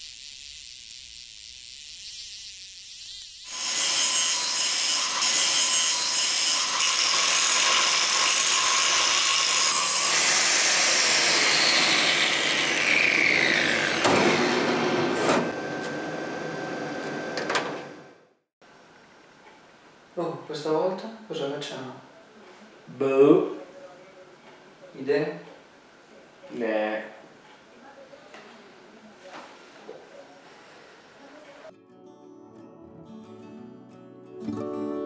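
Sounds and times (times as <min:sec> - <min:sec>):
grinder grinding metal: 0:00.0 - 0:15.6.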